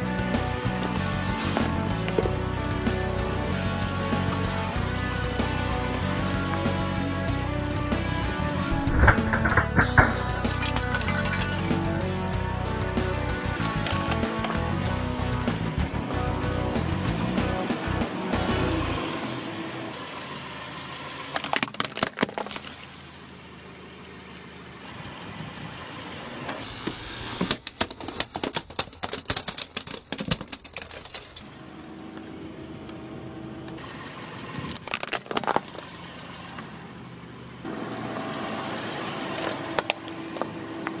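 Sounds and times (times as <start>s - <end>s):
car engine running: 0.0s - 26.6s, 31.4s - 41.0s
plastic toys cracking under tyre: 8.7s - 12.1s, 21.3s - 22.9s, 26.6s - 31.5s, 34.6s - 35.9s, 39.3s - 41.0s.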